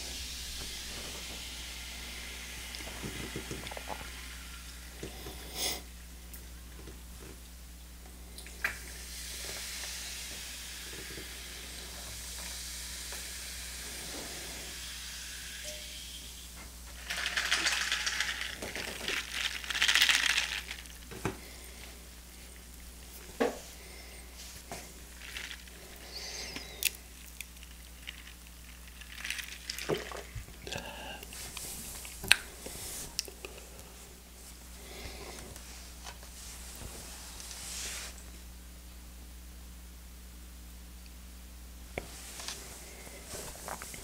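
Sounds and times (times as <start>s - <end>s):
fizzy drink pouring and fizzing: 0.0s - 5.8s, 8.6s - 21.2s, 25.0s - 32.1s.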